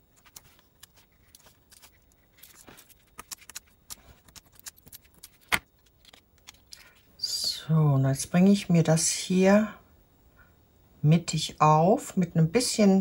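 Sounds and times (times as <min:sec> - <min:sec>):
paper rustling: 0:00.0 - 0:07.1.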